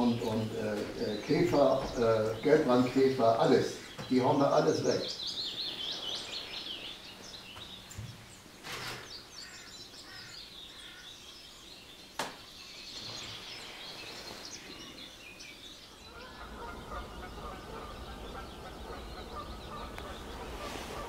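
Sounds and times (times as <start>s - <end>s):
songbirds chirping and singing: 0.0s - 21.0s
low rumble: 16.1s - 20.7s.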